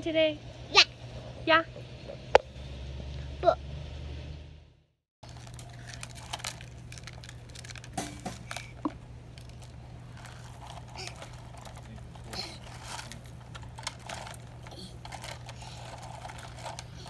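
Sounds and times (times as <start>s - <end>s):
steady low hum: 0.0s - 17.0s
toy trucks on gravel: 5.2s - 17.0s.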